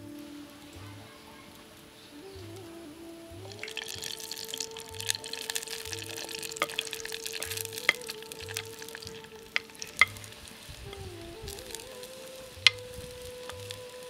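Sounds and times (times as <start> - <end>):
oil crackling: 0.0 - 14.0
onions sizzling in oil: 0.0 - 14.0.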